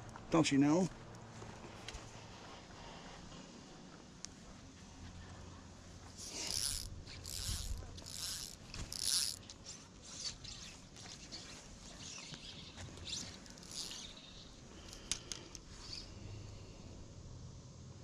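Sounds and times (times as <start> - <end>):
fishing reel drag buzzing: 6.1 - 10.8, 12.2 - 16.1
fishing line rasping: 6.1 - 16.1.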